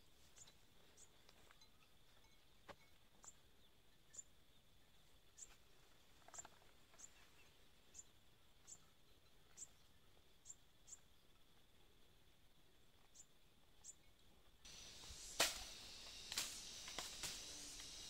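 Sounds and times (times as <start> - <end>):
high-pitched insect drone: 14.7 - 18.0.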